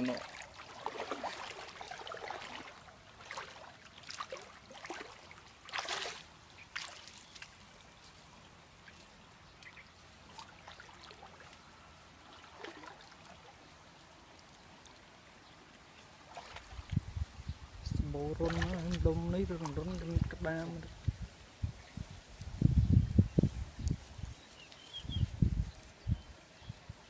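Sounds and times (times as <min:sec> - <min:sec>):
muddy water splashing: 0:00.0 - 0:21.2.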